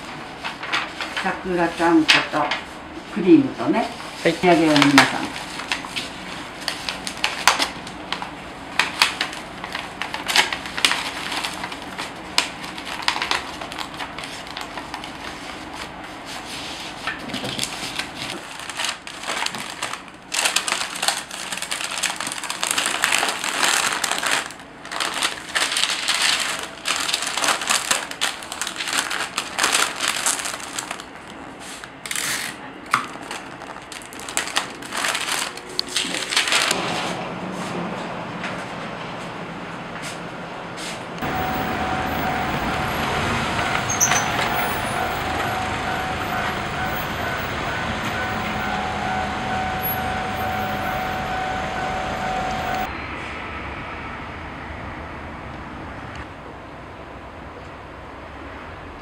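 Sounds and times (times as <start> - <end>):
wrapping paper rustling and crackling: 0.0 - 36.8, 41.2 - 48.6.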